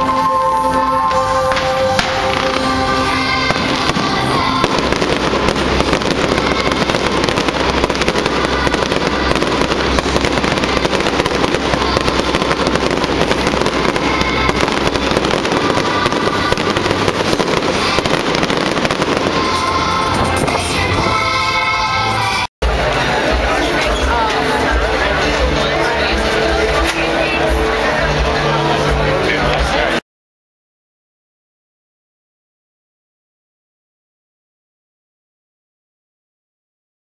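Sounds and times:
show music: 0.0s - 30.0s
fireworks bangs and crackling: 1.0s - 30.0s.

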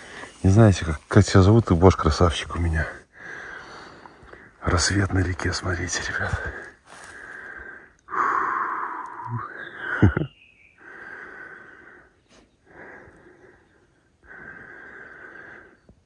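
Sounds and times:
breathing close to microphone: 3.1s - 4.6s, 6.3s - 10.0s, 10.8s - 15.9s.

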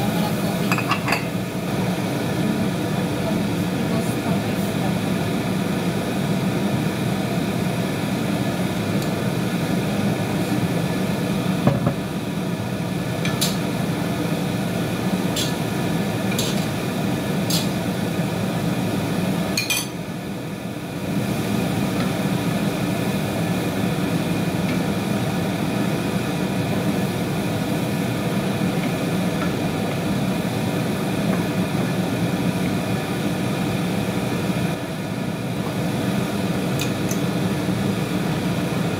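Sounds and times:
range hood fan whirring: 0.0s - 38.9s
utensils clinking against pan: 0.7s - 1.3s
vegetables stir-frying in a wok: 1.4s - 19.6s.

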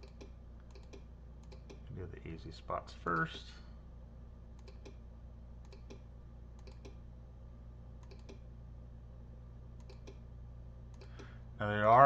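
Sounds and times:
computer mouse clicking: 0.0s - 1.8s, 4.6s - 5.0s, 5.6s - 7.0s, 8.0s - 8.5s, 9.8s - 10.2s, 10.9s - 11.3s
low steady hum: 0.0s - 12.0s.

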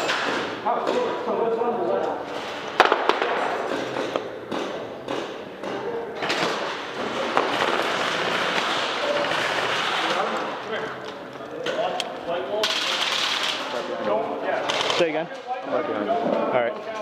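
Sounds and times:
airsoft gunfire cracks: 2.8s - 3.8s.

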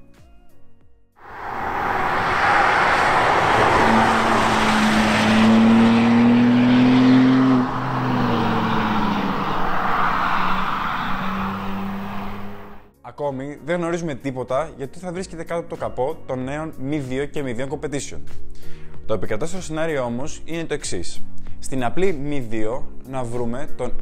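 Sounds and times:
car engine pulling hard: 1.2s - 12.8s.

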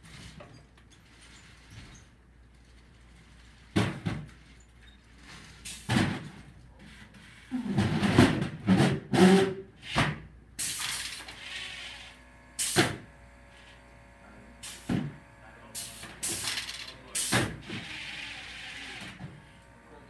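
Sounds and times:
robot mechanical bursts: 10.6s - 20.0s
motor whine: 11.2s - 17.0s, 17.6s - 20.0s.

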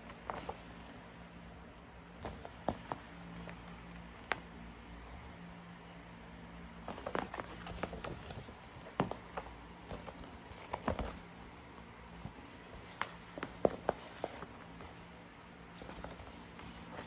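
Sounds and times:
paper crinkling and rustling: 6.8s - 11.4s, 15.7s - 17.0s.

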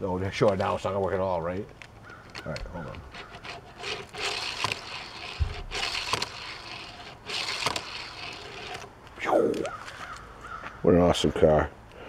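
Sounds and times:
sharp clicks: 1.6s - 10.3s
toy car rolling on wood: 2.1s - 9.2s.

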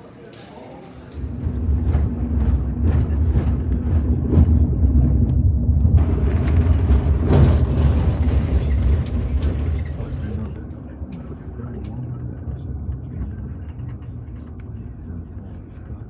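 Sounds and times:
engine and road rumble: 1.0s - 16.0s
knocks and rattles: 1.4s - 10.4s.

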